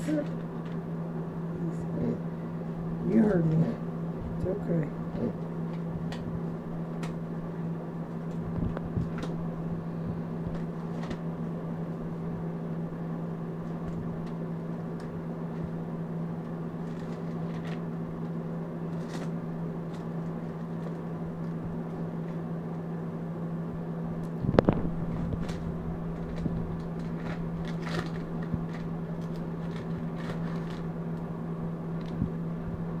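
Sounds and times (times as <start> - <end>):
low hum: 0.0 - 33.0
thin pages rustling: 10.5 - 11.2, 16.8 - 22.5, 24.6 - 31.0.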